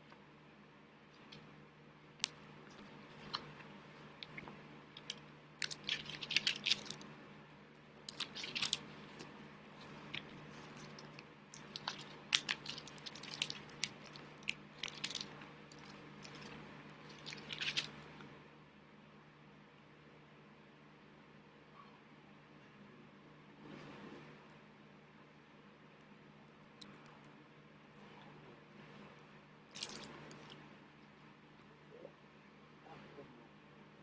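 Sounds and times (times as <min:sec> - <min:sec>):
low steady hum: 0:00.0 - 0:34.0.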